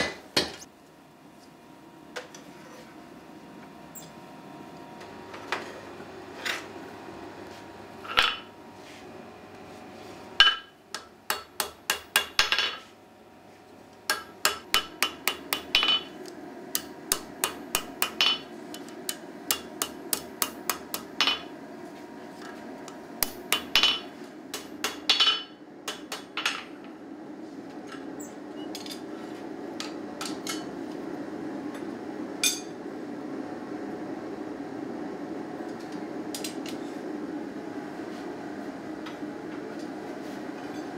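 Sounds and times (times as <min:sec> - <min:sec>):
steady low hum: 0:00.0 - 0:40.9
hammer striking steel on anvil: 0:10.4 - 0:12.8, 0:14.1 - 0:16.2, 0:19.1 - 0:21.5, 0:23.2 - 0:26.6.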